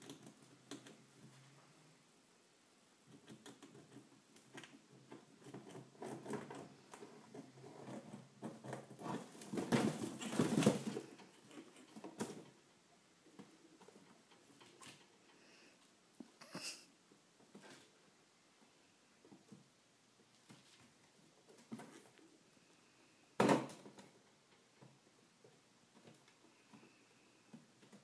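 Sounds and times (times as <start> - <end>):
chinchillas scrabbling in bedding: 5.4 - 12.5.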